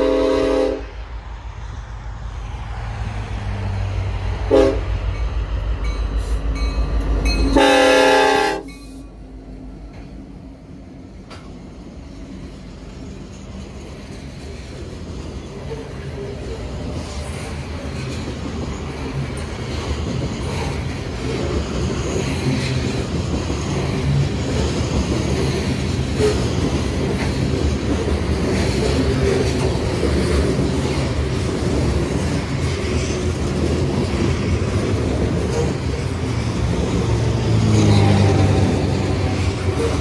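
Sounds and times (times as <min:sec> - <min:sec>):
steel wheels rumbling on rail: 0:00.0 - 0:40.0
wheels clacking over rail joints: 0:11.2 - 0:40.0.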